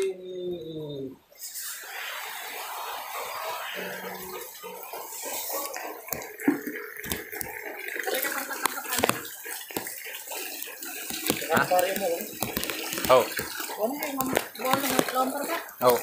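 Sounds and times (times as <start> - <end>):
water sloshing in a bucket: 4.2 - 16.0
knocks on bucket: 11.1 - 15.2.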